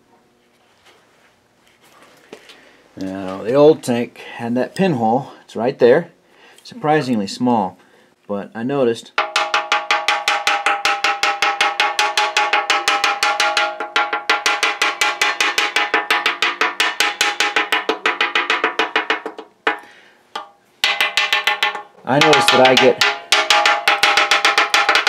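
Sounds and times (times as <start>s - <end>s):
wrench tapping on steel tank: 9.2s - 25.0s.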